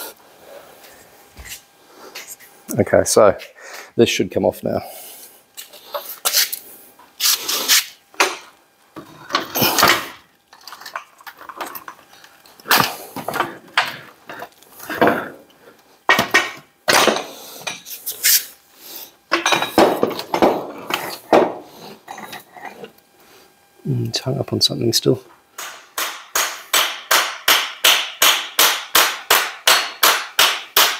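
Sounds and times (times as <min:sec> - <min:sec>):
metal clanks and scrapes: 0:21.9 - 0:23.0.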